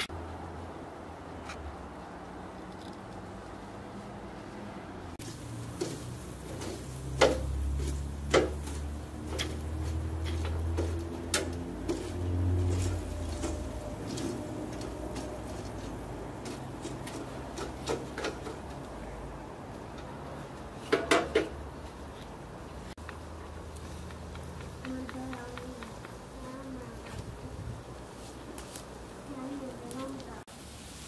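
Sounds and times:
metal grill basket clinking: 0:05.2 - 0:19.2.

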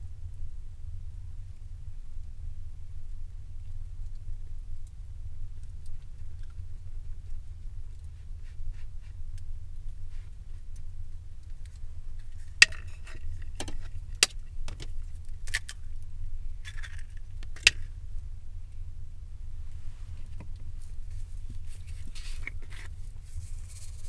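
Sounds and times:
low steady hum: 0:00.0 - 0:24.0
hands rustling in flour: 0:19.6 - 0:24.0.

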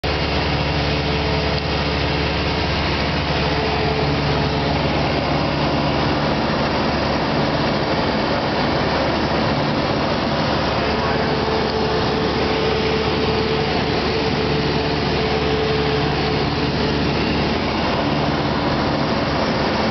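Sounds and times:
aircraft engine and propeller drone: 0:00.0 - 0:19.9.

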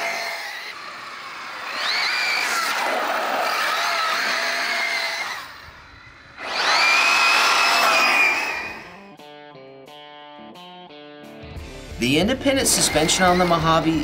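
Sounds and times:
rc truck motor whine: 0:00.0 - 0:09.1.

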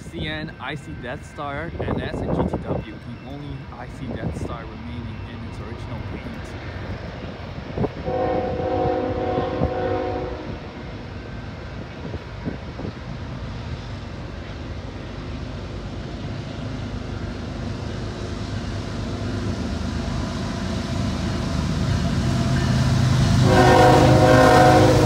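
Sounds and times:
diesel locomotive rumble: 0:00.0 - 0:25.0
train horn blast: 0:08.0 - 0:10.8, 0:23.4 - 0:25.0.

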